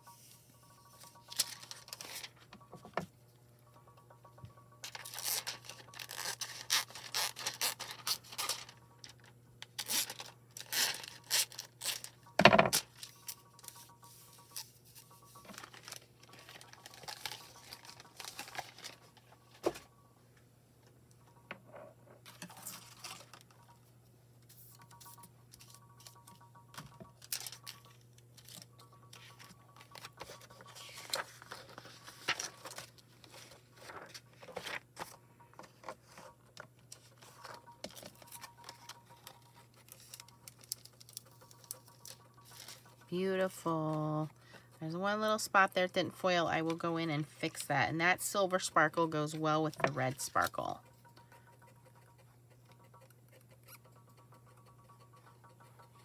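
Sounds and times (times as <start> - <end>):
foil and paper crinkling: 1.1 - 2.4, 4.8 - 9.2, 9.8 - 13.4, 14.4 - 19.8, 27.2 - 36.3, 36.9 - 43.0.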